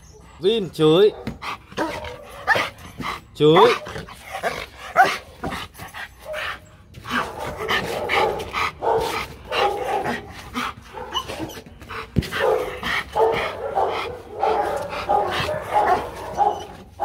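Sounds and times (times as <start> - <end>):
dog barking: 1.1 - 2.8, 3.6 - 4.1, 4.9 - 5.5, 7.1 - 11.5, 12.2 - 17.0.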